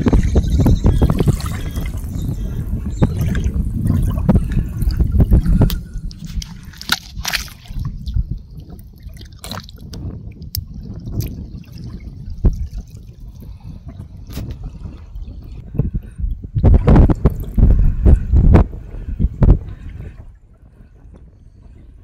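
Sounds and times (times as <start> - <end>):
mud squelching underfoot: 4.4 - 8.0.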